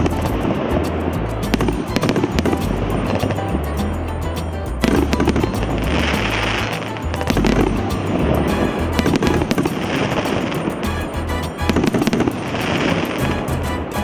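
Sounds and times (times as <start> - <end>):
fireworks firing and crackling: 0.0 - 3.9, 4.7 - 14.0
background music with bass: 0.0 - 14.0.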